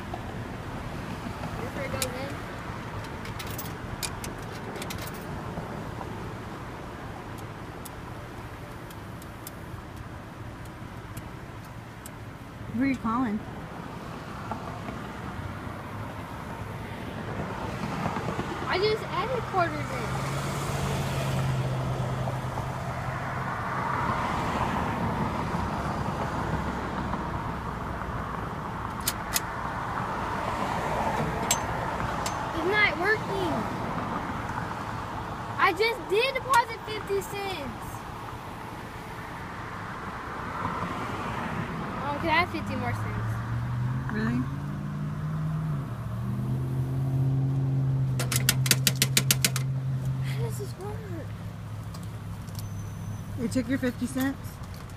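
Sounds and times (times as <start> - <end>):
cars going by: 0.0 - 54.9
sharp clicks: 48.2 - 49.7.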